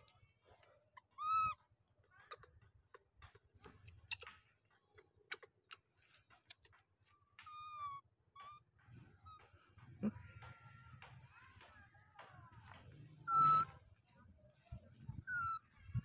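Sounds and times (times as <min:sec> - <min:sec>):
baby monkey coo call: 0:01.0 - 0:02.6, 0:07.4 - 0:08.6, 0:09.2 - 0:10.8, 0:13.2 - 0:13.8, 0:15.2 - 0:15.8.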